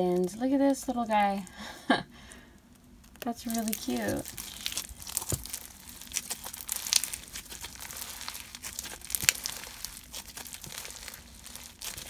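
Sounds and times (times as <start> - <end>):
crunchy slime crackling: 2.3 - 12.0
slime snapping: 3.1 - 12.0.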